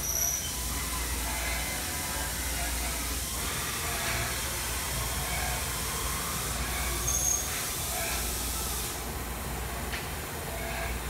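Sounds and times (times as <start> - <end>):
high squeal: 0.0 - 4.4, 6.4 - 8.2
coolant spray hissing: 0.0 - 9.2
low machine hum: 0.0 - 11.0.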